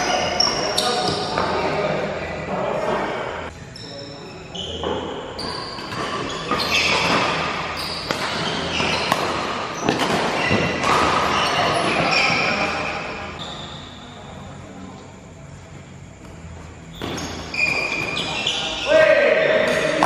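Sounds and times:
shoes squeaking on court: 0.0s - 1.7s, 3.7s - 14.0s, 16.4s - 18.9s.

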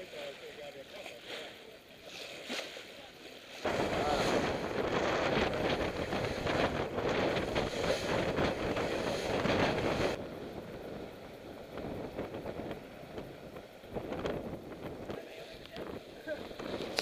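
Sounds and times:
bow wave and spray rushing: 3.6s - 10.2s
wind buffeting microphone: 3.6s - 17.0s.

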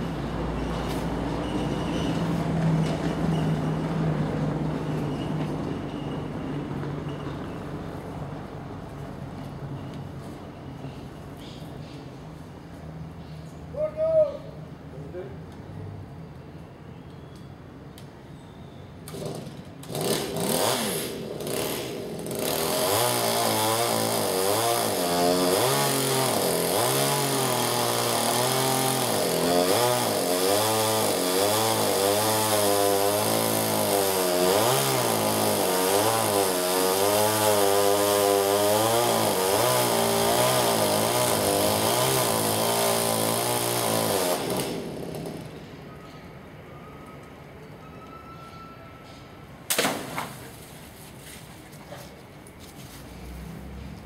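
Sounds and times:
chainsaw cutting wood: 19.1s - 45.6s.

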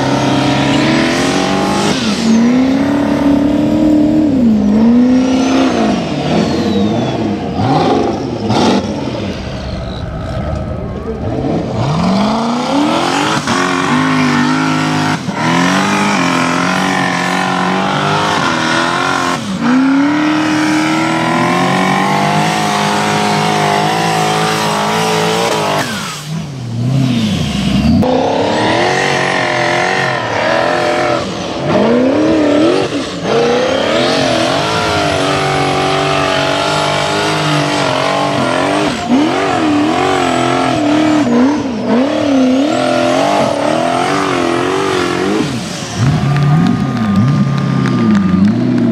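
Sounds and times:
vee eight engine revving hard: 0.0s - 48.9s.

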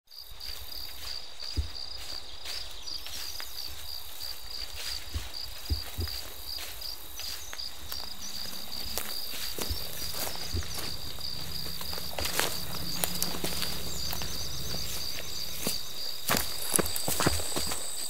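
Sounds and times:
insects chirping: 0.1s - 18.0s
soft low thumps: 1.5s - 2.1s, 5.0s - 6.9s, 7.7s - 17.6s.

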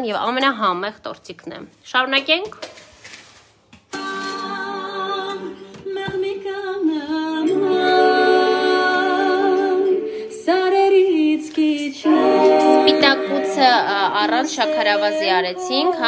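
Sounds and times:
person singing with vibrato: 3.9s - 16.0s.

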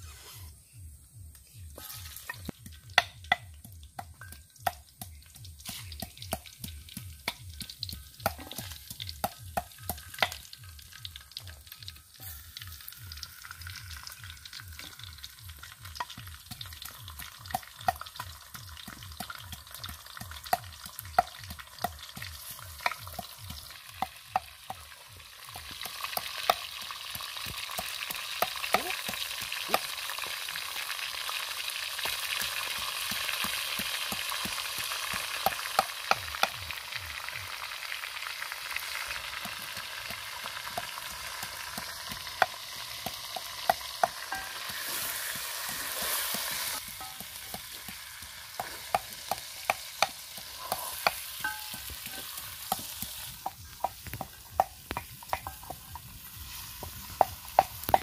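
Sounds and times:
chicken sizzling in clay pot: 0.0s - 58.0s.

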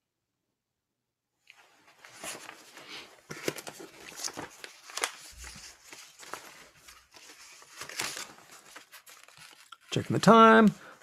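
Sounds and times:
paper rustling: 1.5s - 10.9s.

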